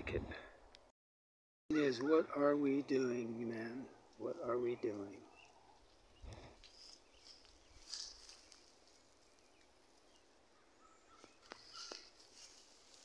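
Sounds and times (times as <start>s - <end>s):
faint bird chirps: 5.2s - 12.2s.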